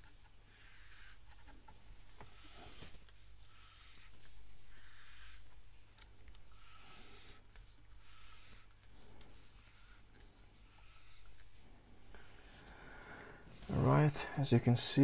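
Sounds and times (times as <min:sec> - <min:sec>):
scratchy rubbing strokes: 0:06.5 - 0:14.2.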